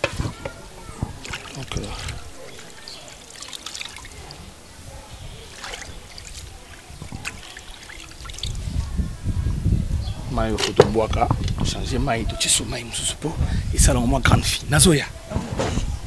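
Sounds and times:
leaves rustling: 0:00.0 - 0:13.4
water trickling and dripping: 0:00.3 - 0:11.7.

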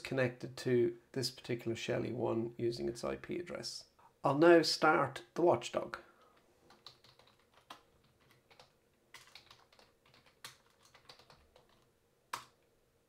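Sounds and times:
keyboard typing: 0:06.7 - 0:12.6.

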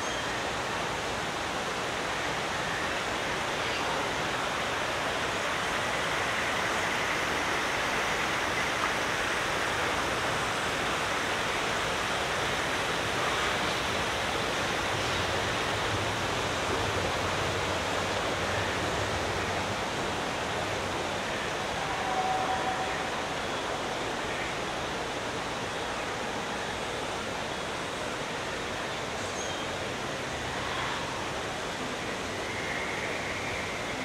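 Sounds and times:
waterfall rushing: 0:00.0 - 0:34.0.

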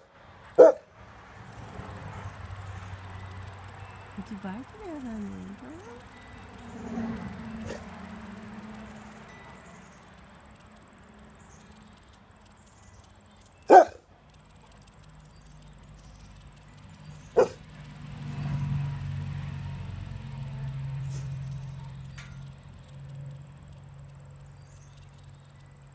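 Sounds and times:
dog barking: 0:00.6 - 0:00.9, 0:13.7 - 0:14.0, 0:17.4 - 0:17.6.

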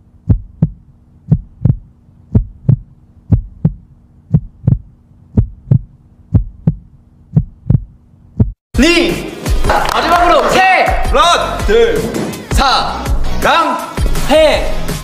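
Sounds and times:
faint steady hum: 0:00.0 - 0:08.6
heartbeat thumps: 0:00.2 - 0:08.6.

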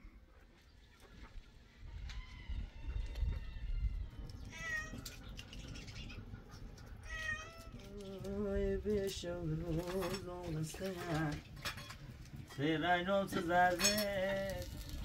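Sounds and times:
cat meowing: 0:04.4 - 0:05.2, 0:07.0 - 0:07.9.

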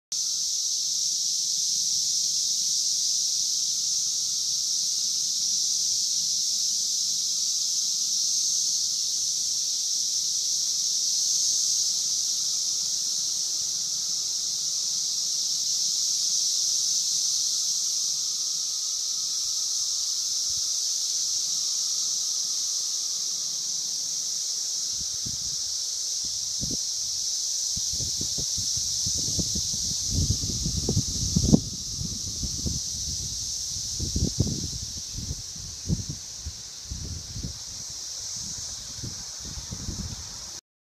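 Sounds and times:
cicadas droning: 0:00.1 - 0:40.6.

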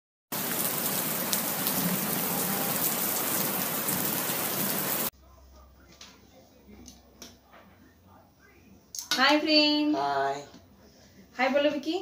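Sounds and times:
steady rain: 0:00.3 - 0:05.1.

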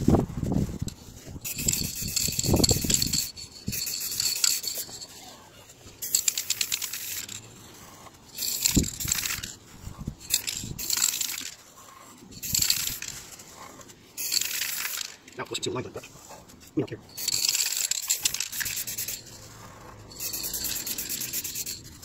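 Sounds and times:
spray can hissing: 0:01.4 - 0:04.9, 0:06.0 - 0:07.4, 0:08.4 - 0:09.6, 0:10.2 - 0:11.6, 0:12.3 - 0:13.2, 0:14.2 - 0:15.2, 0:17.1 - 0:19.6, 0:20.2 - 0:22.0.

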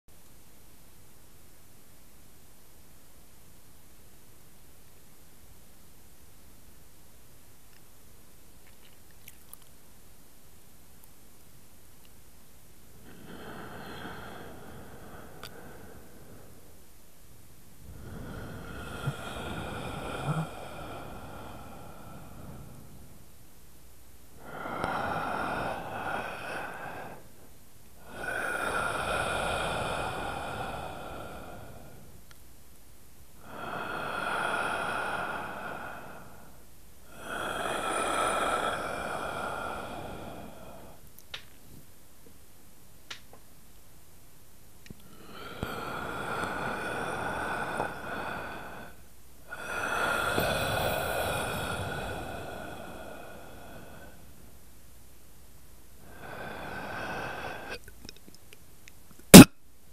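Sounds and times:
breathy hissing swells: 0:12.8 - 0:17.0, 0:17.7 - 0:23.4, 0:24.3 - 0:32.3, 0:33.4 - 0:41.0, 0:45.1 - 0:54.5, 0:56.0 - 0:57.8.

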